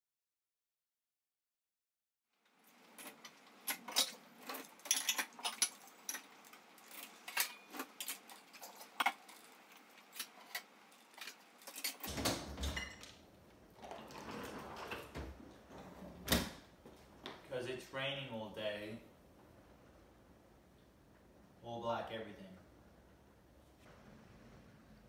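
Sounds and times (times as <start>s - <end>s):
plates and cutlery clinking: 3.0s - 13.1s
dishwasher door shutting: 12.0s - 13.1s, 13.8s - 16.7s.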